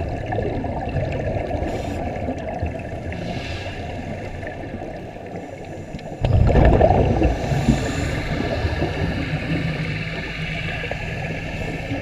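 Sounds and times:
low underwater rush: 0:00.0 - 0:12.0
regulator exhaust bubbles gurgling: 0:06.2 - 0:12.0.

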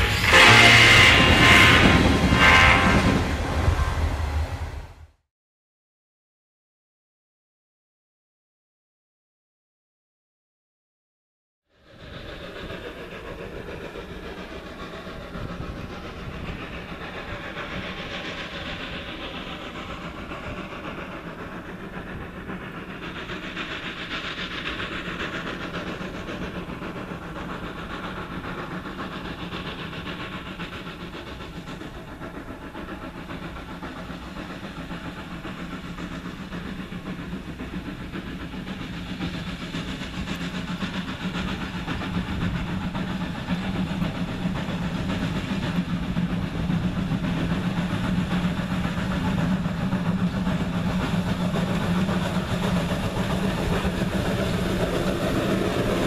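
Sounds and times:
steam locomotive running: 0:00.0 - 0:05.1, 0:11.8 - 0:56.0.

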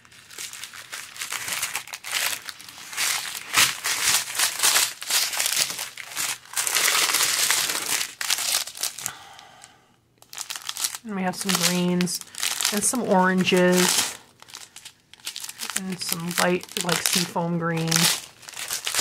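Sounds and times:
plastic bags crinkling and rustling: 0:00.0 - 0:09.1, 0:10.2 - 0:19.0.

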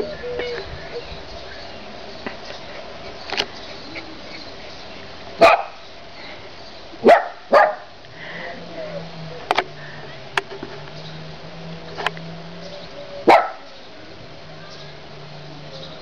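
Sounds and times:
dog barking: 0:05.4 - 0:05.8, 0:07.0 - 0:07.9, 0:13.2 - 0:13.7.

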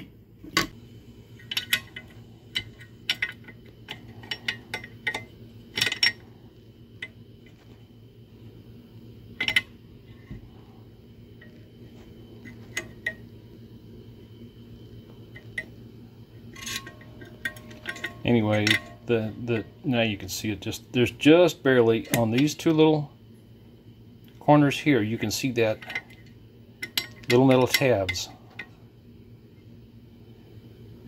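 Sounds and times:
steady low hum: 0:00.0 - 0:31.0
metal parts clinking: 0:01.4 - 0:06.3, 0:16.5 - 0:19.6.

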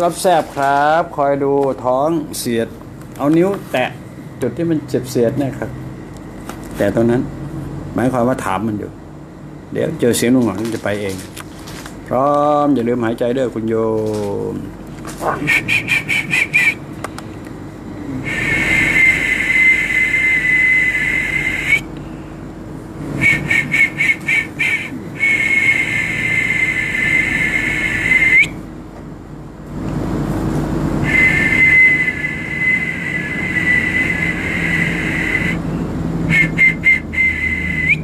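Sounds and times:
short whistle toots: 0:15.4 - 0:16.8, 0:18.3 - 0:21.9, 0:23.2 - 0:28.6, 0:31.0 - 0:35.6, 0:36.3 - 0:38.0
high whistle blasts: 0:18.2 - 0:21.9, 0:23.2 - 0:28.6, 0:31.0 - 0:35.7, 0:36.3 - 0:38.0.

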